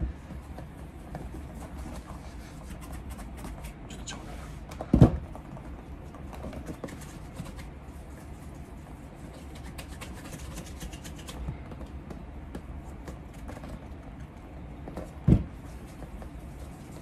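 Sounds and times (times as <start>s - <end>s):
scratchy ticks polishing leather shoe: 8.8s - 11.4s.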